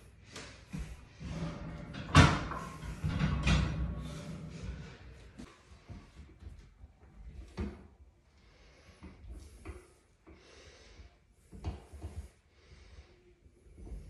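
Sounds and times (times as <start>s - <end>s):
heavy breathing: 0.0s - 5.5s.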